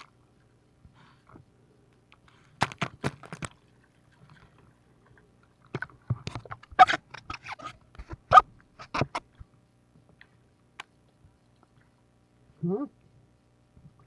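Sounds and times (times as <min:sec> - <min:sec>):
water splashing and sloshing: 0:02.8 - 0:09.4.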